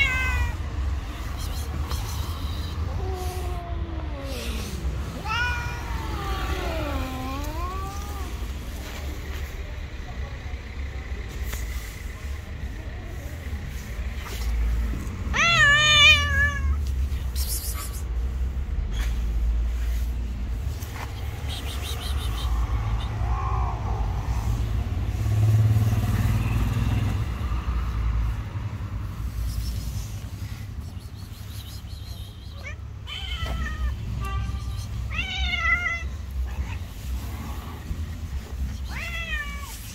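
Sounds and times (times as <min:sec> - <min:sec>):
cat yowling: 0:00.0 - 0:00.6, 0:02.9 - 0:08.4, 0:15.3 - 0:16.8, 0:32.6 - 0:36.9.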